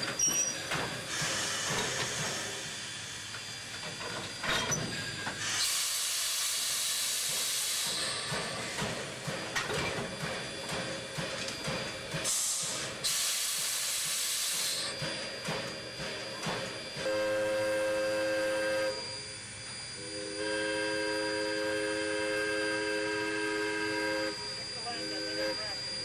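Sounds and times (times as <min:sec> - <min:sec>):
steam locomotive venting steam: 0:00.0 - 0:26.0.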